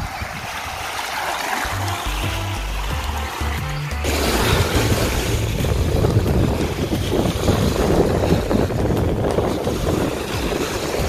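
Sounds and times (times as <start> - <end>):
wind buffeting microphone: 0.0 - 2.7, 4.1 - 11.0
waves washing on shore: 0.0 - 11.0.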